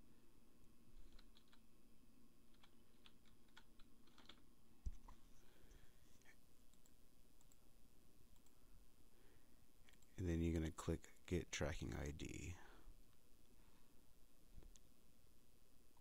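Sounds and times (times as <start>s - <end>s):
faint keyboard typing: 0.6s - 1.7s, 2.4s - 8.7s, 9.8s - 10.4s.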